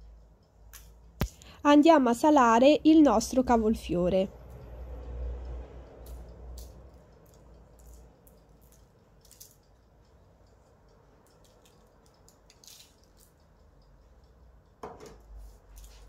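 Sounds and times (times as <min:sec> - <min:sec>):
salt grains ticking: 0:00.0 - 0:16.0
knock: 0:14.8 - 0:15.2.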